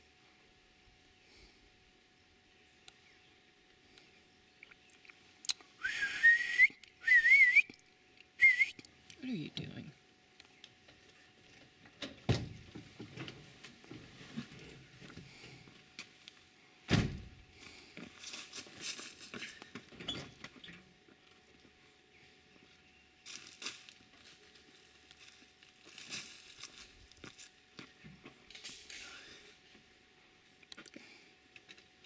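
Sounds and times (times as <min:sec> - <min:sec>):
rustling: 0:17.6 - 0:19.9, 0:23.2 - 0:27.6.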